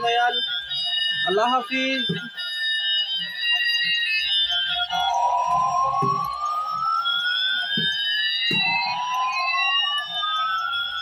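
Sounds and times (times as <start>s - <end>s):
toy siren-like gliding tones: 0.0s - 11.0s
toy knocks: 5.9s - 6.4s, 7.7s - 8.8s.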